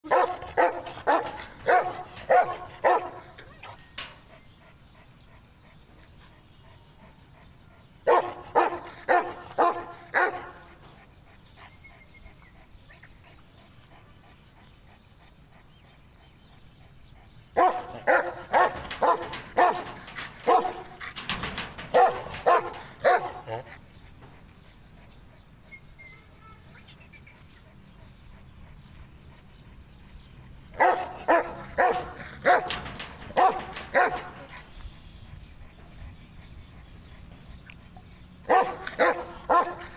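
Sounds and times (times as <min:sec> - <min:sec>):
dog barking: 0:00.0 - 0:03.7, 0:08.1 - 0:10.7, 0:17.6 - 0:23.7, 0:30.8 - 0:34.6, 0:38.4 - 0:39.9.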